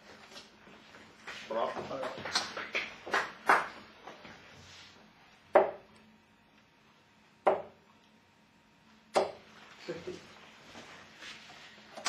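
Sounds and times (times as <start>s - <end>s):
darts thudding into dartboard: 5.5s - 5.9s, 7.4s - 7.8s, 9.1s - 9.4s.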